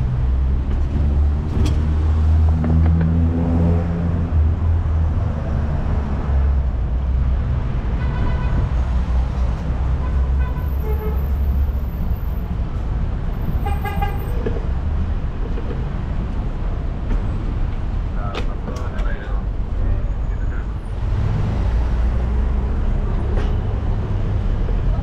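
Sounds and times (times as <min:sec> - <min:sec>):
street traffic rumble: 0:00.0 - 0:25.0
wind: 0:00.0 - 0:25.0
car horn toots: 0:08.0 - 0:08.7, 0:10.0 - 0:11.3, 0:13.6 - 0:14.3.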